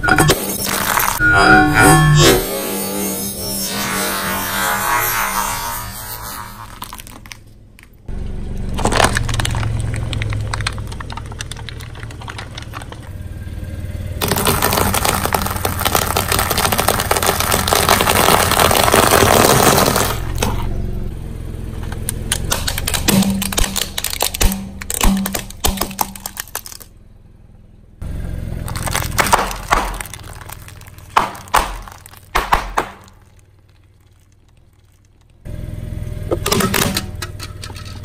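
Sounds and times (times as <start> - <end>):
sharp crack: 0.1 - 1.2, 4.5 - 8.1, 14.2 - 20.7, 22.0 - 27.0, 28.6 - 35.4
eggshells crackling under car tyre: 0.5 - 1.2, 6.6 - 13.3, 14.2 - 20.6, 22.0 - 27.0, 28.5 - 35.5.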